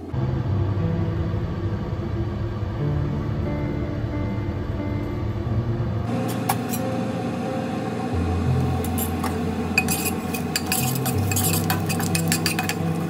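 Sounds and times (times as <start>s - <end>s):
metal spatula clinking and scraping: 6.3s - 6.8s, 8.9s - 13.0s.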